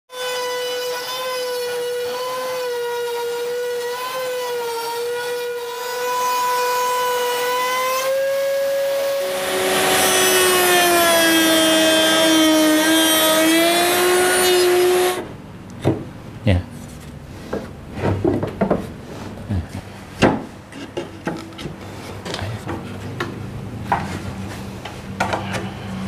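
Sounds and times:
router bit whining: 0.1s - 15.3s
router cutting wood: 0.1s - 15.3s.

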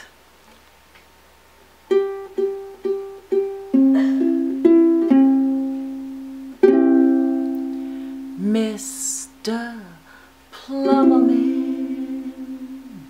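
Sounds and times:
ukulele playing: 1.9s - 8.5s, 10.7s - 13.0s.

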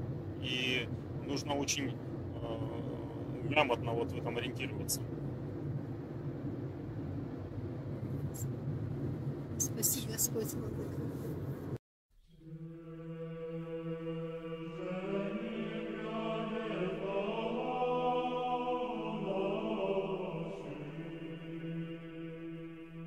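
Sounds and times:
slow vocal chant: 12.3s - 23.0s.

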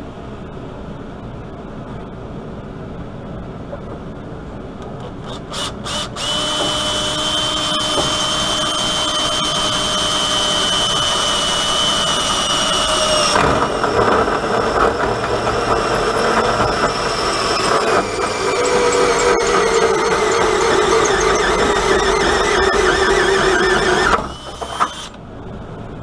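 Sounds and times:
drill hole saw cutting metal: 5.3s - 25.2s.

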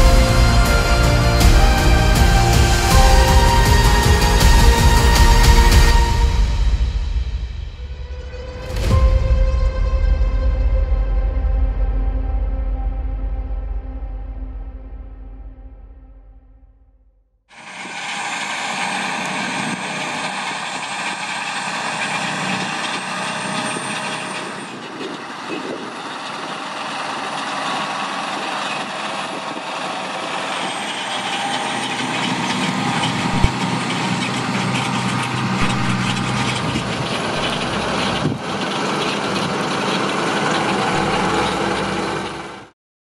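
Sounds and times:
tractor diesel engines under load: 0.0s - 7.0s, 17.5s - 42.7s.

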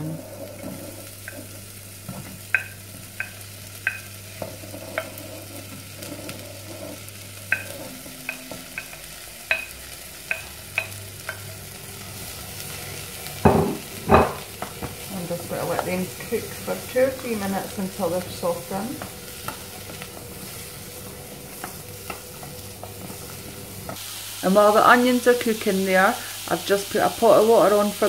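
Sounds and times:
frying sizzle: 0.0s - 28.0s
spatula scraping a plate: 4.3s - 8.9s.

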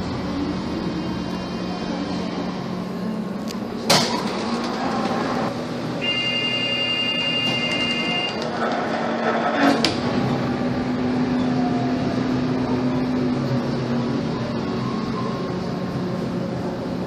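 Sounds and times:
tram running noise: 0.0s - 17.0s
high-pitched door warning buzz: 6.0s - 8.5s.

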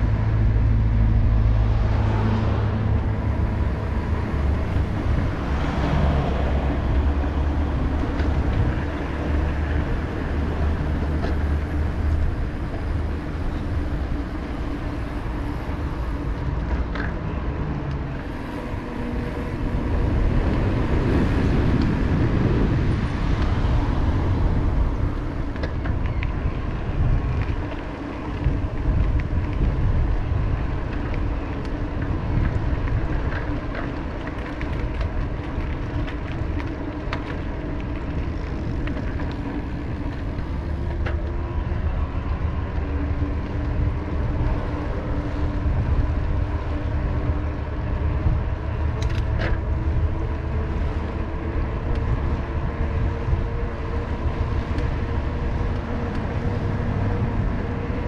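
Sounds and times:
road traffic passing: 0.0s - 58.0s.

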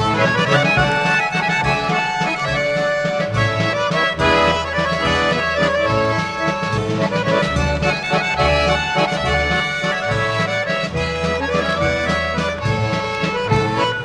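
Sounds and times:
accordion folk music: 0.0s - 14.0s.

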